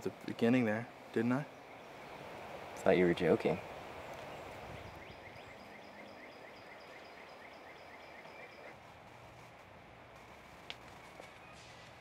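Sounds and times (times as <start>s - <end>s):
faint outdoor ambience: 0.0s - 12.0s
rhythmic chirping: 4.9s - 8.8s.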